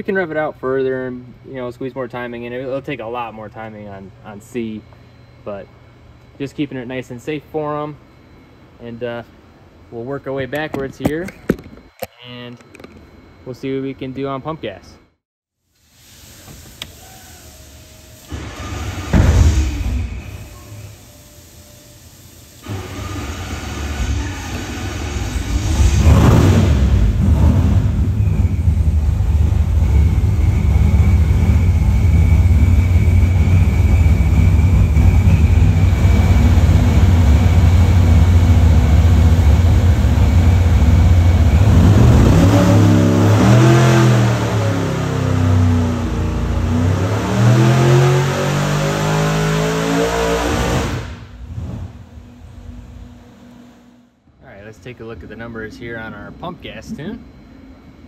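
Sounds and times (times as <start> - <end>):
faint supercharger whine: 0.0 - 58.0
supercharged engine roaring: 22.7 - 54.0.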